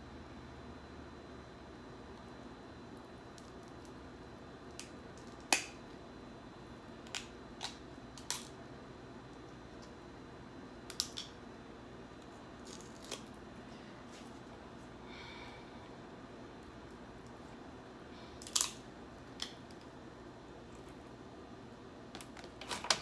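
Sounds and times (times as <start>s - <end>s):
crab shells cracking: 4.6s - 5.8s, 7.0s - 8.6s, 10.8s - 11.4s, 12.6s - 13.4s, 18.4s - 19.9s.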